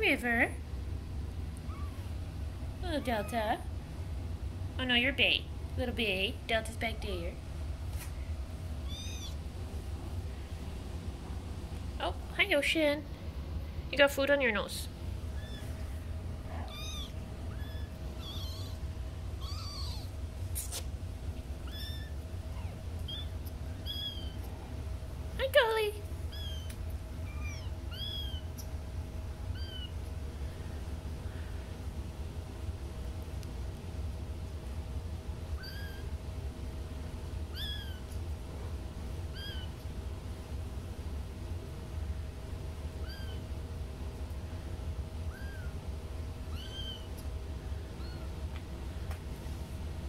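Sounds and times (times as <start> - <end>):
steady low hum: 0.0 - 50.0
steady low rumble: 0.0 - 50.0
kittens mewing: 1.5 - 2.4, 8.8 - 9.5, 15.2 - 20.8, 21.5 - 24.6, 26.2 - 28.7, 29.5 - 30.0, 35.6 - 36.2, 37.5 - 38.2, 39.3 - 39.8, 42.9 - 43.4, 45.2 - 45.9, 46.5 - 48.4.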